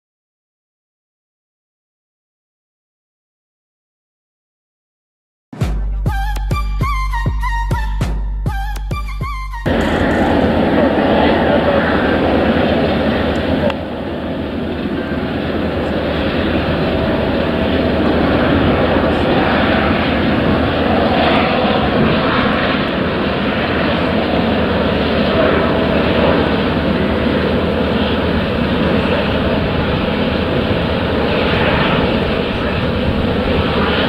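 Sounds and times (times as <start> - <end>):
jet engine rushing: 9.6 - 34.0.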